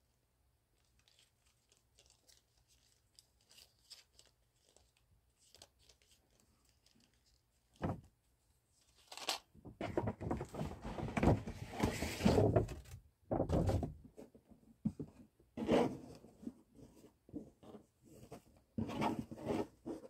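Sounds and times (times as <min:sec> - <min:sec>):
ribbon rustling and brushing: 0:00.8 - 0:07.8.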